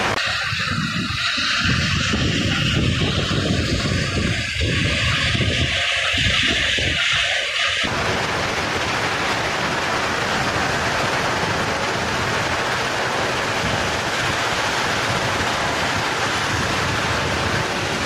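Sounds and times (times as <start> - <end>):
crushing plant machinery running: 7.9 - 18.0.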